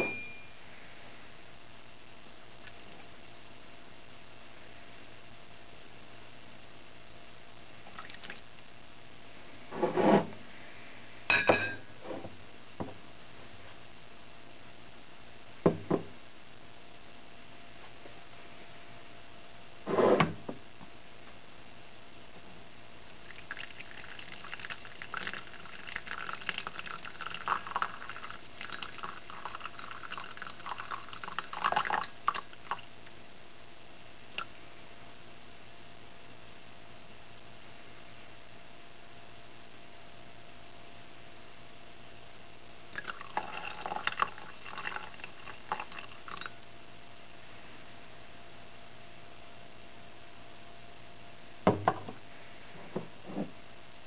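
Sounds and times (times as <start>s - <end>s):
cup clinking down with ring: 0.0s - 0.5s, 11.3s - 11.8s
container scraping on countertop: 9.7s - 10.4s
liquid trickling into a mug: 23.2s - 32.9s, 43.0s - 46.6s.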